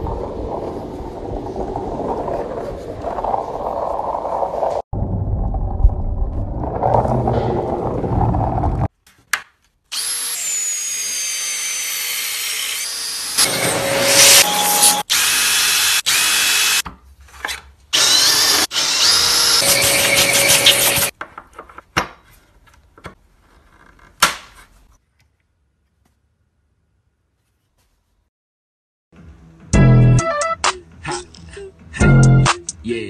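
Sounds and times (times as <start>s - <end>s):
cordless drill whining: 12.8s - 16.8s, 18.0s - 21.1s.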